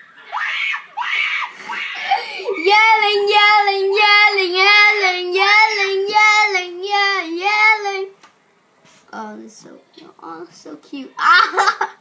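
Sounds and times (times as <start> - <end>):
child singing: 2.5 - 8.2.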